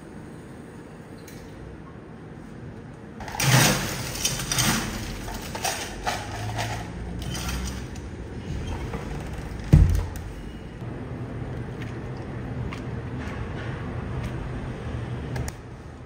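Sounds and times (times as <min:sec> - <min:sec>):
ice cubes rattling: 0:03.2 - 0:07.9.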